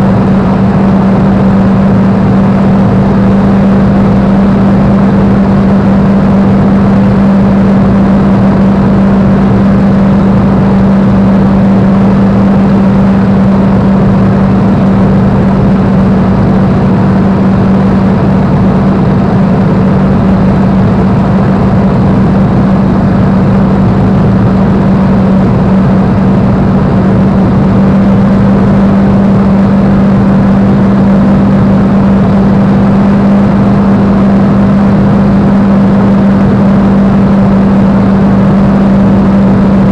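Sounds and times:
aircraft engine drone: 0.0 - 39.9
rush of airflow: 0.0 - 39.9.

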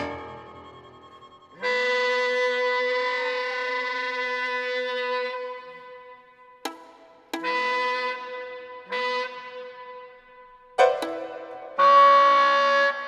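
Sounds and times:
saxophone violin and piano music: 10.8 - 12.4.

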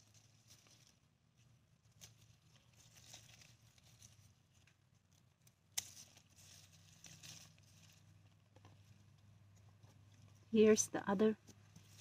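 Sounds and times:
leaves rustling: 0.0 - 9.3, 10.0 - 12.0
shears snipping a stem: 5.4 - 7.6.

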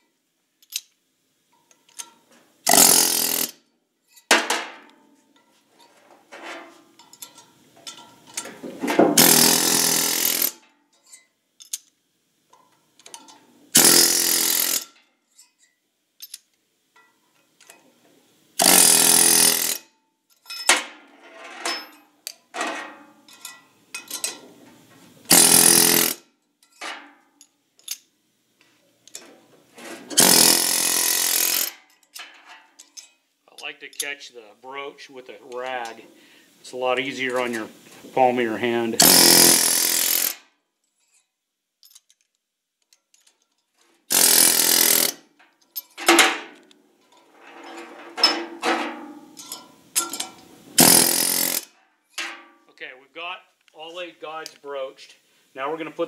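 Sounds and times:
air hammer bursts: 2.6 - 3.6, 9.2 - 10.6, 13.7 - 14.8, 18.6 - 19.8, 25.3 - 26.2, 30.1 - 31.7, 38.1 - 40.4, 44.1 - 45.2, 50.8 - 51.7.

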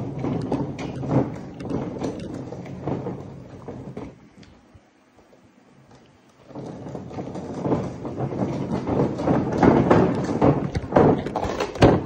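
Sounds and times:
metal case rattling: 0.0 - 4.2, 5.9 - 12.0
case wheels rumbling on concrete: 0.0 - 12.0
irregular knocks: 5.9 - 12.0.

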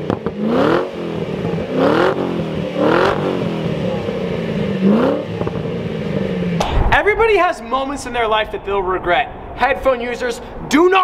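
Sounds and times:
car engine revving: 0.0 - 7.6.

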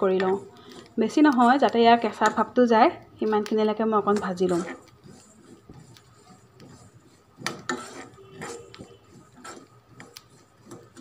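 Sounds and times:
spatula scraping spices in pan: 0.0 - 11.0
metal clicking on pan: 7.4 - 11.0.

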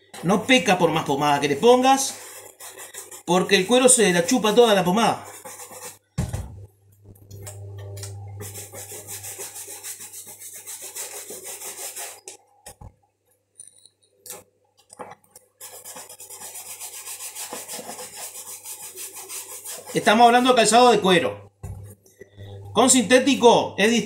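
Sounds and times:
shoe brush scrubbing leather: 1.4 - 6.0, 8.4 - 12.3, 15.6 - 20.6.

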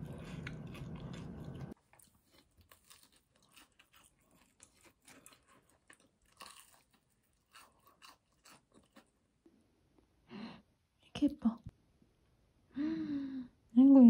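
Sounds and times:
kitten chewing: 0.0 - 9.2.

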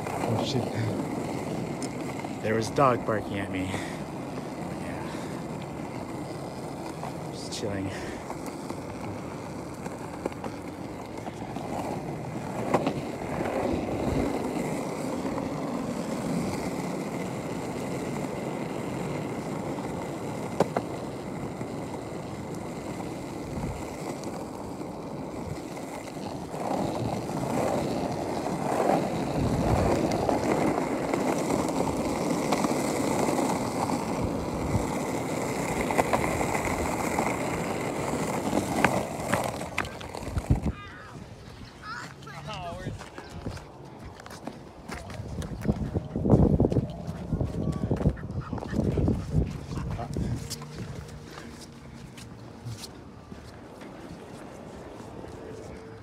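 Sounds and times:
wheels clicking over cracks: 0.0 - 41.0
plastic wheels rolling on pavement: 0.0 - 56.0.

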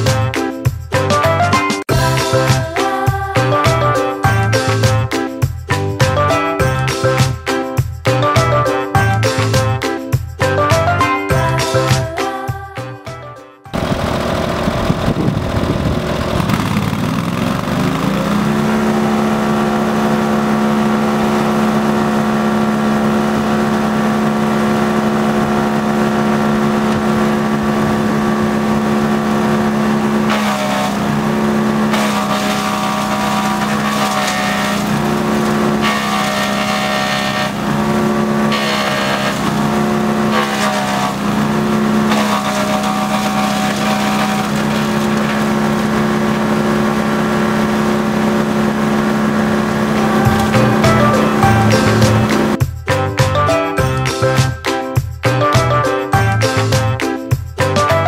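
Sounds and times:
wood chipper engine running: 1.0 - 5.1, 13.7 - 52.6
branches crackling in chipper: 13.8 - 52.6.

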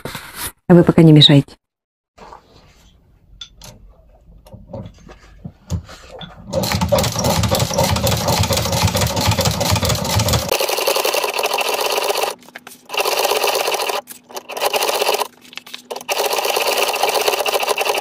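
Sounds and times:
sewing machine running: 6.4 - 15.3, 15.9 - 18.0.

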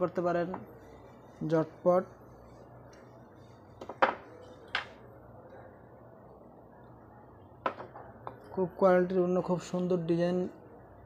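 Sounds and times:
faint steady hum: 0.0 - 11.0
wooden blocks knocking: 3.8 - 4.9, 7.6 - 8.0.

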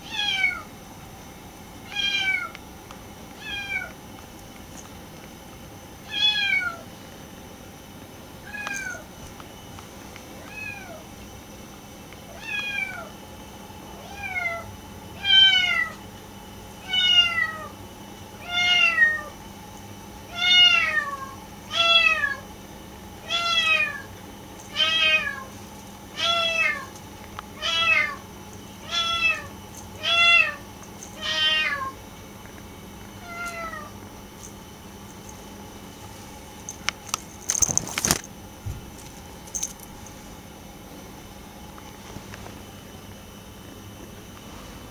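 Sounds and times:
kitten meowing: 28.8 - 30.6, 31.2 - 32.0.

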